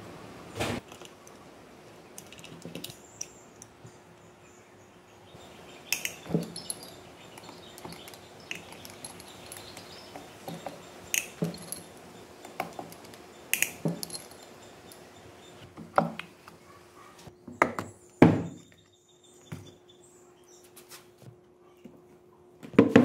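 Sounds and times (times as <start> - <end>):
tools clinking on metal engine: 5.9 - 15.1.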